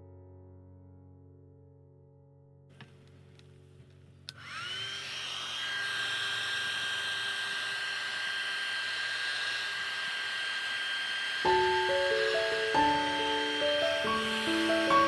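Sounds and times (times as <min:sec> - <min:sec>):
hair dryer motor whine: 0:04.2 - 0:15.0.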